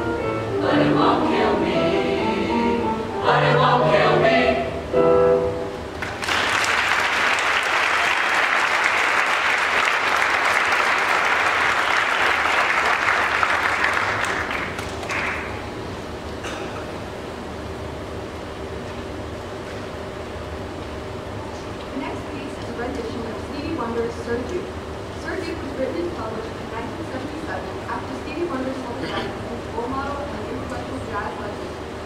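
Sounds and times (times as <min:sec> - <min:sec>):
choir singing: 0:00.2 - 0:05.1
audience applause: 0:06.0 - 0:15.6.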